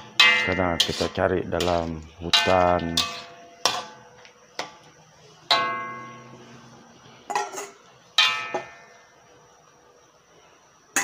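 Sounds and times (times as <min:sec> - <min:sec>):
metal spatula clanking on wok: 0:00.0 - 0:04.0, 0:07.3 - 0:08.9.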